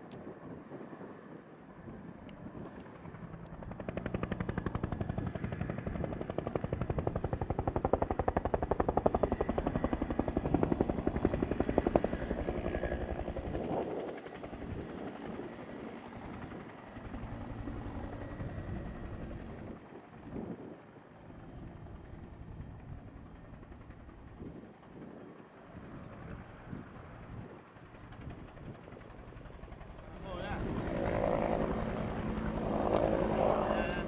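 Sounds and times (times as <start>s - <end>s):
helicopter rotor chopping: 2.2s - 34.0s.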